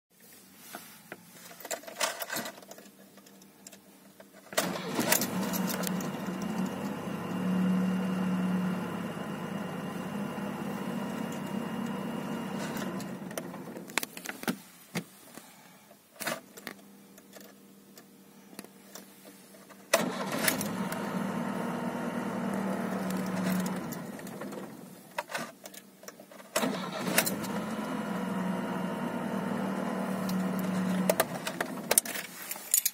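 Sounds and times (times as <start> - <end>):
car engine starting and running: 4.6 - 14.1, 19.9 - 25.1, 26.6 - 32.1.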